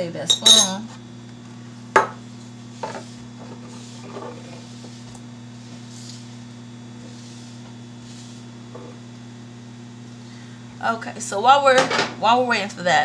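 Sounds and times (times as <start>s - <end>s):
microwave oven humming: 0.0s - 13.0s
paper towel wiping countertop: 2.7s - 9.0s.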